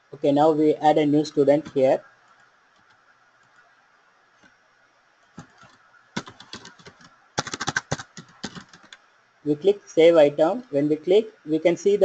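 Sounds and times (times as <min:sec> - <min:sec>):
computer keyboard typing: 0:01.5 - 0:03.6, 0:05.3 - 0:09.0.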